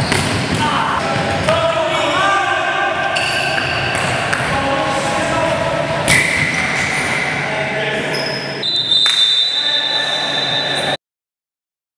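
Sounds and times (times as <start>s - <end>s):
players' voices: 0.5s - 8.6s.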